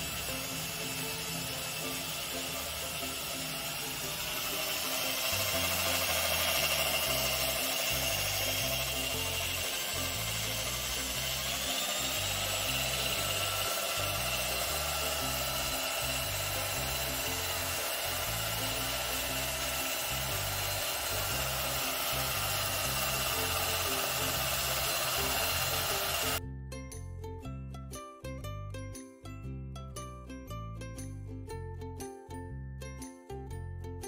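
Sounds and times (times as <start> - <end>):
electric drill whining: 0.0 - 26.4
background music: 0.0 - 34.0.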